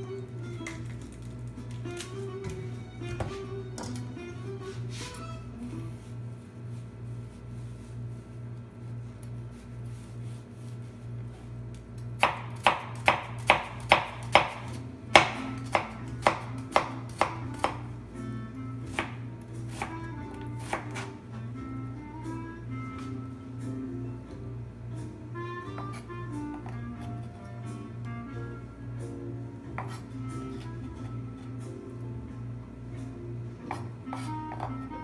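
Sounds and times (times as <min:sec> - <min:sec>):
background music: 0:00.0 - 0:06.0, 0:13.8 - 0:35.0
knife chopping on plastic board: 0:12.2 - 0:17.8, 0:29.8 - 0:30.1.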